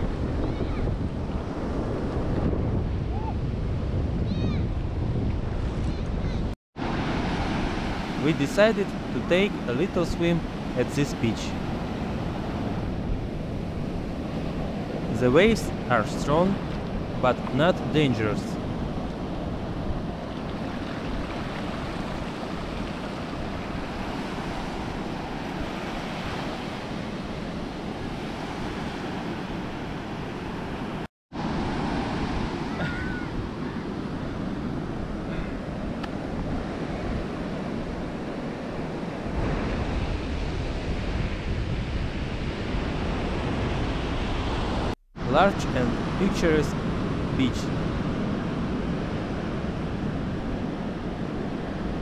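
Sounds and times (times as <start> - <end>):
wind rumbling on microphone: 0.0 - 8.2, 11.5 - 15.9, 17.8 - 45.0, 46.8 - 52.0
ocean surf breaking: 5.4 - 52.0.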